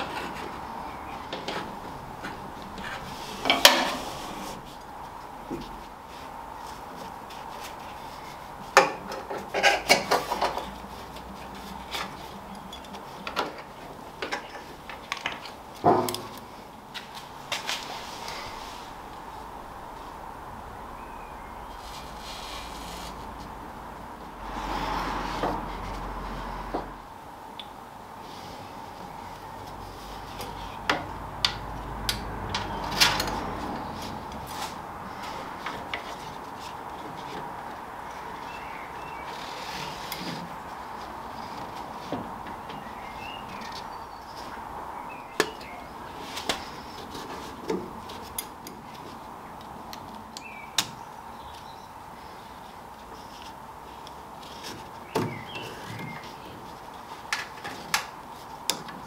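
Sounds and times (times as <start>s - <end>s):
strap rubbing: 21.6s - 26.7s.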